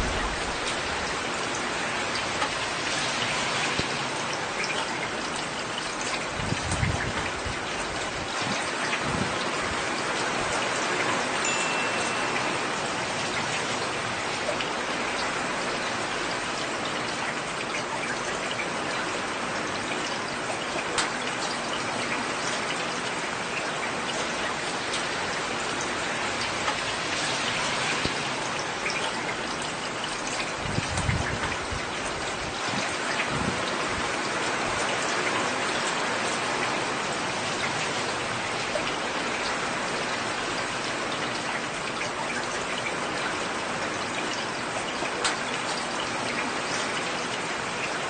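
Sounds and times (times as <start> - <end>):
low rumble: 0.0 - 1.2
heavy rain: 0.0 - 48.0.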